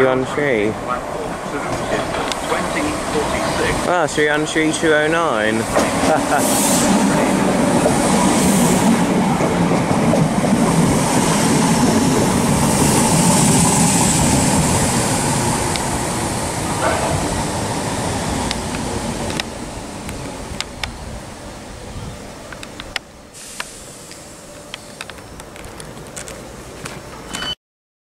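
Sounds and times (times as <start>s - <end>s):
train wheels rumbling on rails: 0.0s - 27.5s
high hiss: 1.2s - 9.4s, 10.6s - 22.3s, 23.3s - 25.3s.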